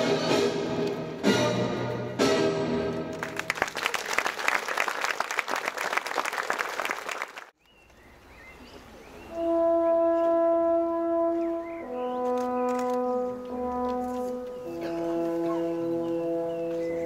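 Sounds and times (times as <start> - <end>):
audience applause: 3.1 - 7.5
brass horn long note: 9.3 - 17.0.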